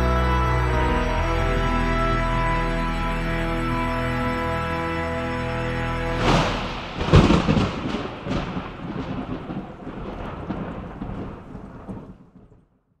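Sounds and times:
thunder crack and rumble: 6.2 - 12.8.

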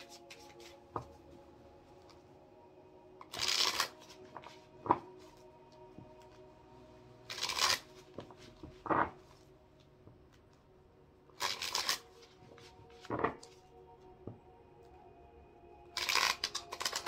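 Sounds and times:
cards shuffling: 0.0 - 1.2, 3.2 - 5.5, 7.3 - 9.4, 11.4 - 13.6, 16.0 - 17.0
faint background music: 0.0 - 17.0
cards snapping: 7.3 - 7.8, 11.4 - 12.0, 16.0 - 17.0.

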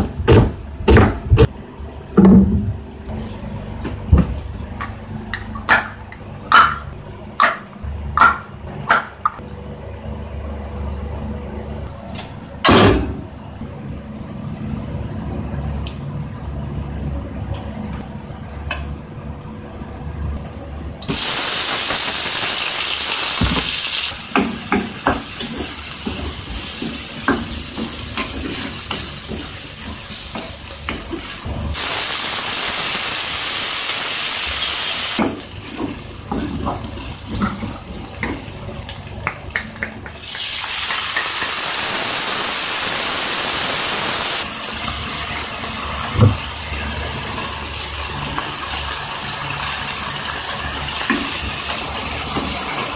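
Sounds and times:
onions sizzling in hot oil: 21.1 - 52.9.

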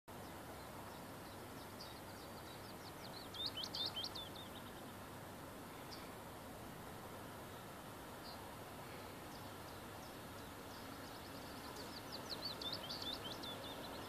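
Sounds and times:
faint outdoor background noise: 0.1 - 14.0
songbird chirping: 0.1 - 14.0.

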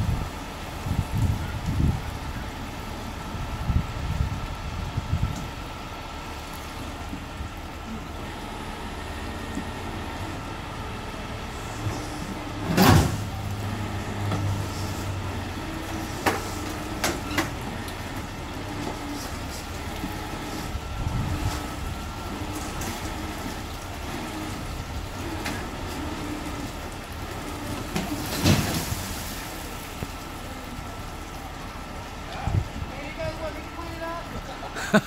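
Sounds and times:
tow truck engine running: 0.0 - 35.0.

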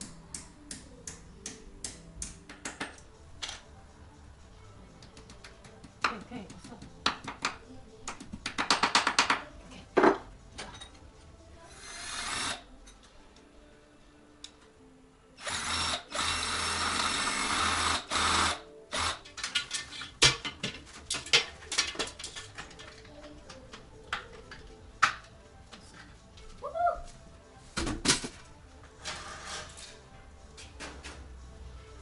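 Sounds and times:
power drill running: 15.4 - 19.2.

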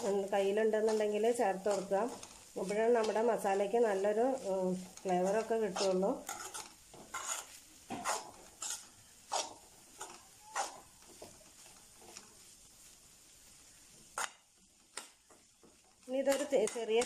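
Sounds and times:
spoon scraping metal pan: 0.0 - 12.3, 16.2 - 17.0.

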